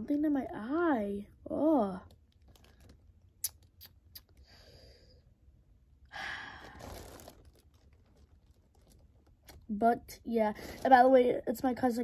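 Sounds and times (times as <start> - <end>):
boy sighing: 6.1 - 7.0.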